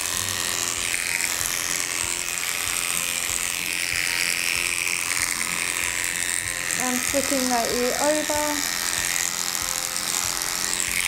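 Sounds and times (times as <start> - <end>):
electric clippers buzzing: 0.0 - 11.0.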